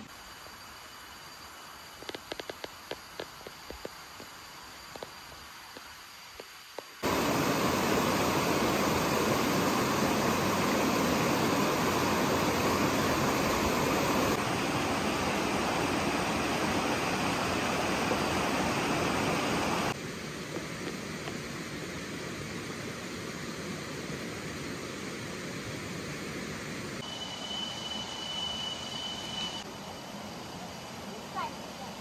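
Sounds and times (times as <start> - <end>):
stream rushing over boulders: 6.3 - 20.0.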